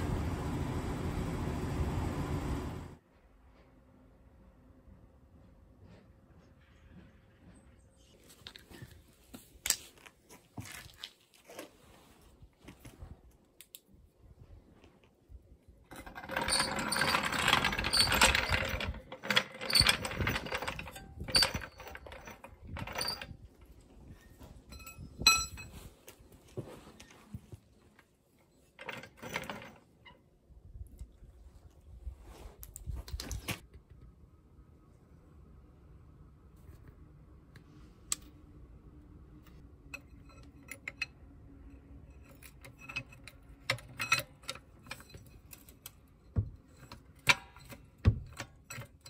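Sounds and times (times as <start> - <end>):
floor jack rattling and clanking: 15.9 - 23.4
jack scraping on concrete: 15.9 - 25.9.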